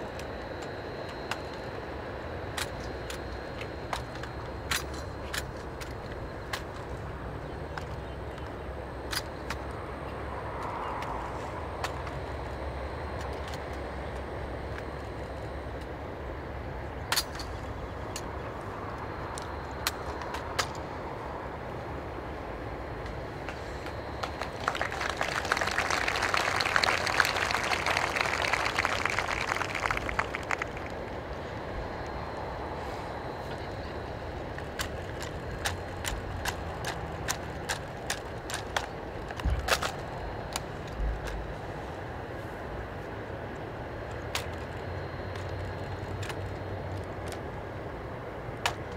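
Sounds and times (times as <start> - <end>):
low outdoor rumble: 0.0 - 48.9
rifles clicking and knocking: 2.5 - 7.0, 34.5 - 41.5.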